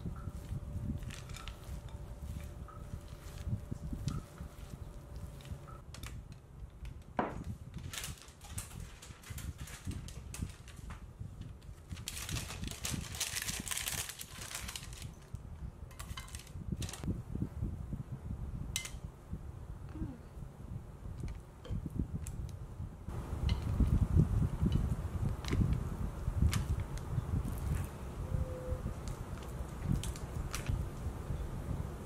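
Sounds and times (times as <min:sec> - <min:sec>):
parchment paper crinkling: 0:00.4 - 0:06.2, 0:07.5 - 0:15.4, 0:16.0 - 0:17.1.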